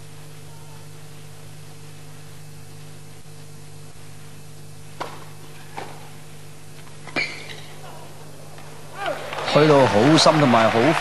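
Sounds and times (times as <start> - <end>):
recording hiss and hum: 0.0 - 11.0
tennis ball strikes: 5.0 - 6.1.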